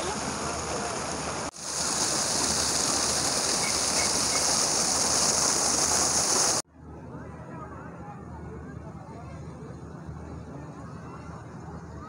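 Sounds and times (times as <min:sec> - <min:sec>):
fountain water splashing: 0:00.0 - 0:06.6.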